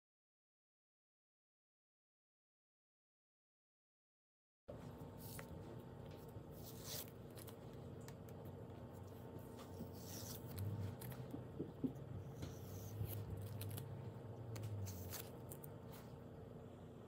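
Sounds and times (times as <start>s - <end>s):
masking tape ripping off paper: 14.6s - 15.7s.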